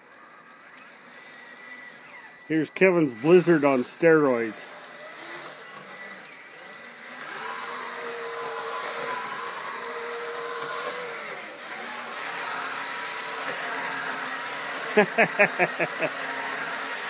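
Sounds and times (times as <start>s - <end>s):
electric motor whining: 0.0s - 17.0s
tracks churning snow: 13.4s - 17.0s.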